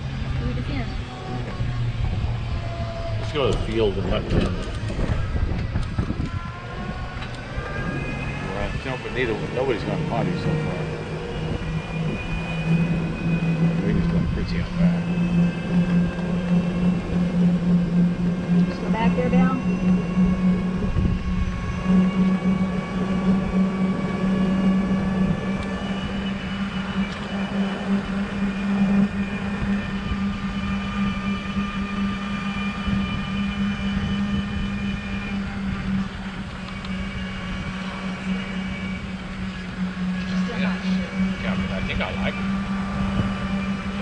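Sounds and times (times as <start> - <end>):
tyres rumbling on road: 0.0 - 29.4
faint thin whine: 0.0 - 44.0
golf cart motor hum: 0.0 - 44.0.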